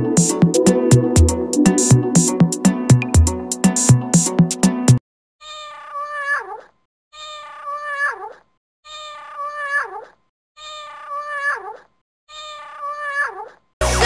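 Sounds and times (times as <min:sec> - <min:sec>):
looped cat meow: 0:05.4 - 0:13.7.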